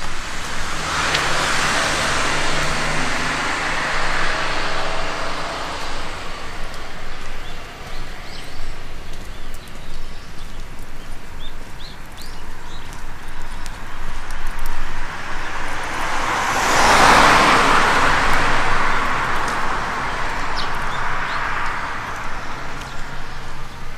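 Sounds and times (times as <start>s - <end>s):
vehicle passing close by: 0.0s - 9.1s, 14.2s - 23.9s
birds chirping: 6.7s - 13.9s, 20.0s - 23.9s.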